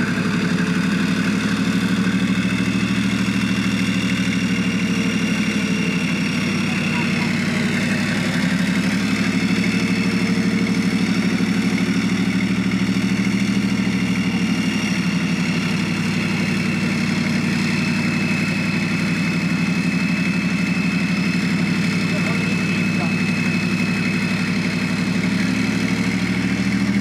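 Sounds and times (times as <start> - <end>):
diesel engine droning: 0.0 - 27.0
high whine: 4.3 - 10.9.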